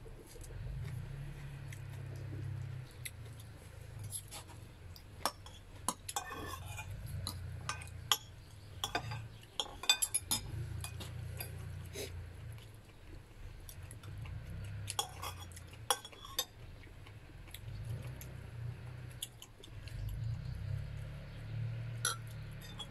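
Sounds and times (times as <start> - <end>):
cutlery clinking on plate: 5.2 - 11.8, 14.9 - 16.6, 22.0 - 22.9.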